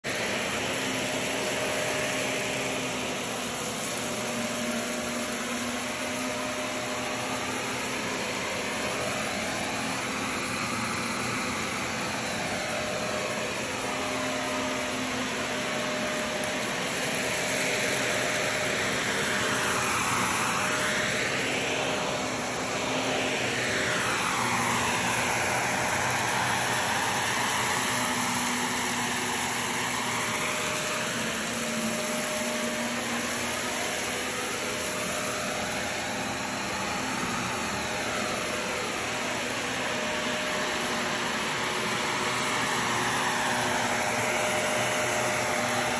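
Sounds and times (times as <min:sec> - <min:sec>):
vacuum cleaner running on carpet: 0:00.0 - 0:45.9.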